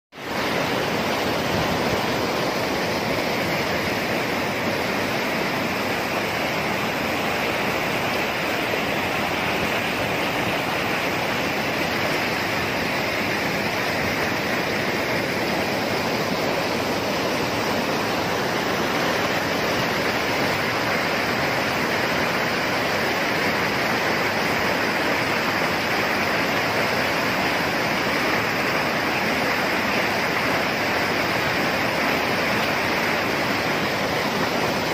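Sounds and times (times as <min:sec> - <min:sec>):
fast-flowing water rushing: 0:00.1 - 0:34.9.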